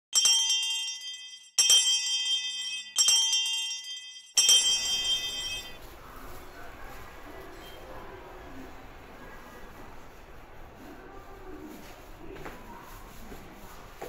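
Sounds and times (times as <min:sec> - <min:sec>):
jingling bell chime: 0:00.2 - 0:05.9
faint background noise: 0:04.4 - 0:14.0.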